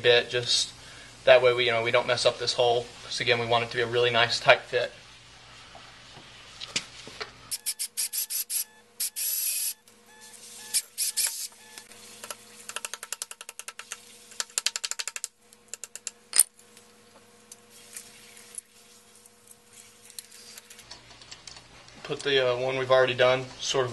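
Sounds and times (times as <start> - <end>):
cordless drill boring metal: 7.5 - 9.8.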